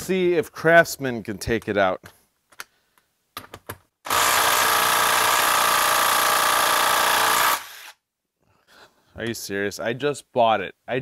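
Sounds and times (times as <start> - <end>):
impact driver hammering: 4.1 - 7.9.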